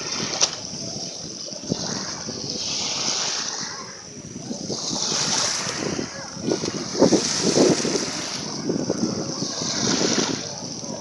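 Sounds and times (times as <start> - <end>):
waves breaking on beach: 0.0 - 11.0.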